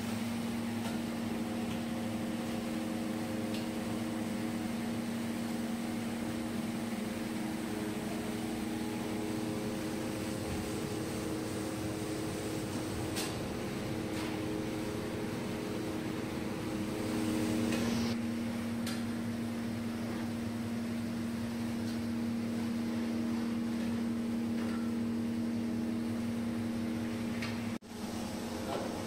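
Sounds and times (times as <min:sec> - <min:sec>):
mechanical hum and drone: 0:00.0 - 0:29.0.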